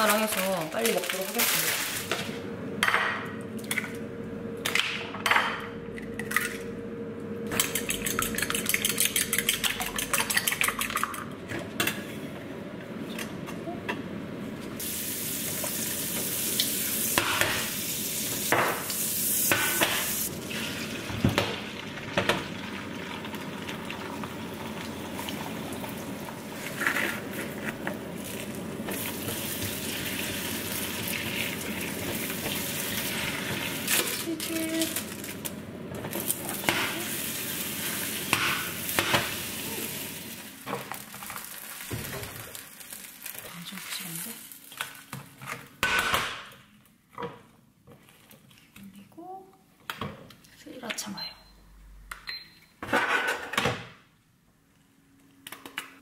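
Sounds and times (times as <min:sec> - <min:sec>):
eggs beaten in bowl: 0:07.6 - 0:11.3
eggs sizzling in frying pan: 0:14.8 - 0:34.1, 0:35.0 - 0:45.2.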